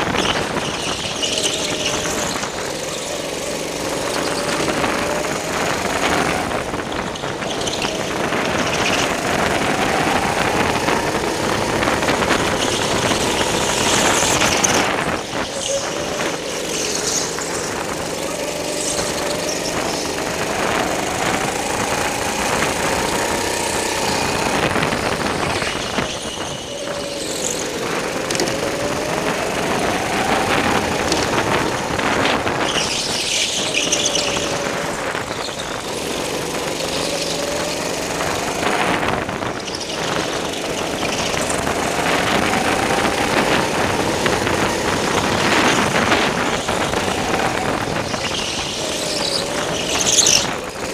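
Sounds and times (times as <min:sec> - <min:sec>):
go-kart engine revving: 0:00.0 - 0:50.9
tyre squeal: 0:00.0 - 0:50.9.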